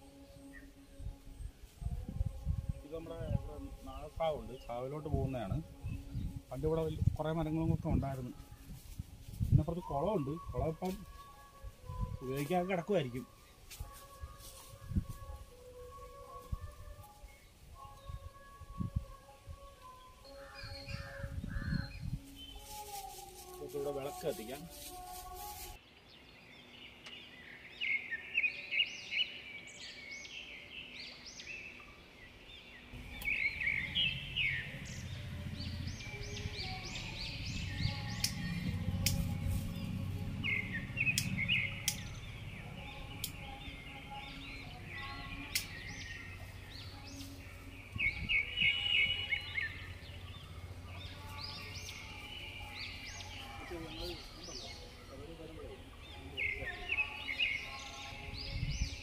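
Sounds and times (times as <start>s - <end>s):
birds chirping: 0.0s - 8.8s, 9.4s - 59.0s
low rumble: 33.0s - 43.2s.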